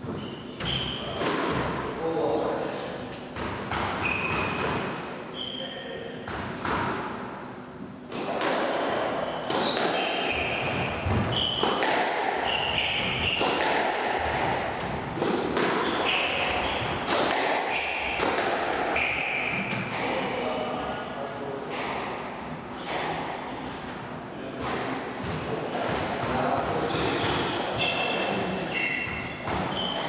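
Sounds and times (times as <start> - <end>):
shoes squeaking on wooden floor: 4.0 - 4.6, 9.2 - 11.7, 27.0 - 30.0
squash ball cracking off rackets: 8.1 - 18.8.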